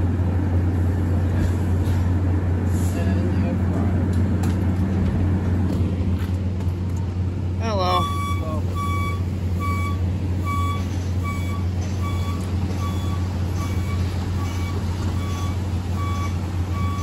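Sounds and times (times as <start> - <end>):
standing train hum: 0.0 - 17.0
door-closing warning beeps: 7.9 - 17.0.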